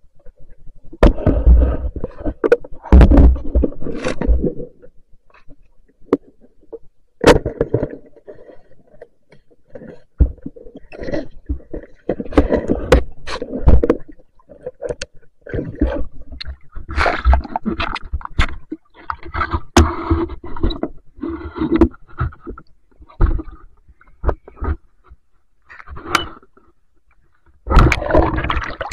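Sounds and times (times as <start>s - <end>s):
water splashing: 27.7s - 28.9s.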